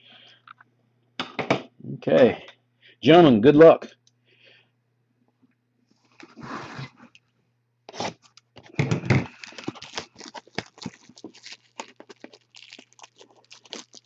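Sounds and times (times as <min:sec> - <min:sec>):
packaging crackling and clicking: 0:08.2 - 0:14.0
cardboard box rustling: 0:09.3 - 0:12.3
cardboard ripping: 0:09.3 - 0:14.0.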